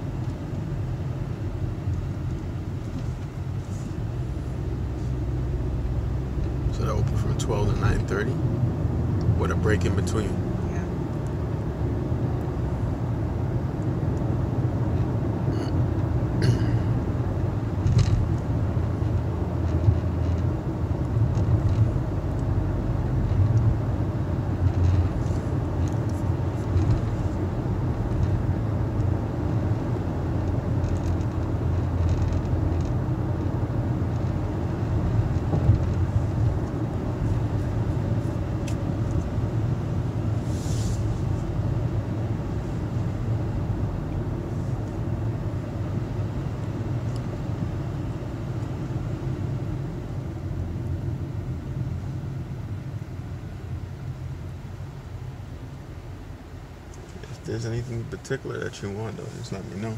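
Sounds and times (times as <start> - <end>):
tyre and engine rumble: 0.0 - 59.9
short hiss: 40.4 - 41.2.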